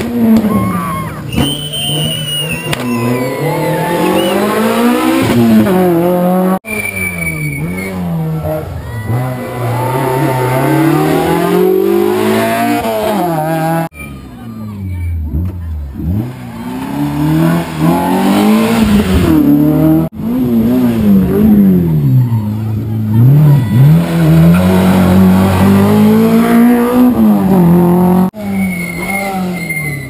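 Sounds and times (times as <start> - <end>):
rally car engine revving: 0.0 - 14.0, 15.1 - 30.0.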